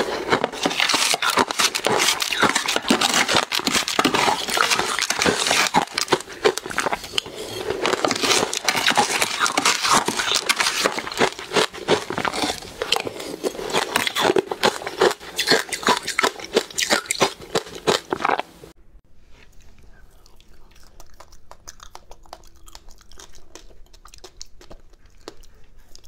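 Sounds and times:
metal spoon scraping plastic tub: 0:00.0 - 0:18.4
crunching and chewing ice: 0:00.0 - 0:18.6, 0:20.0 - 0:26.0.

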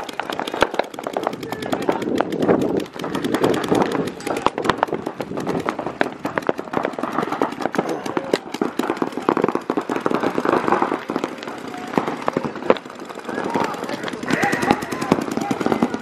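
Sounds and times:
paintball markers firing: 0:00.0 - 0:16.0
paintballs breaking on bunkers: 0:00.0 - 0:16.0.

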